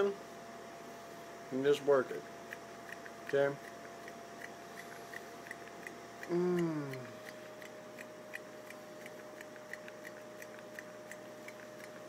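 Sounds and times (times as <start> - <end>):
faint even ticking: 2.5 - 12.0
thin steady tone: 2.5 - 12.0
person humming: 6.2 - 7.4.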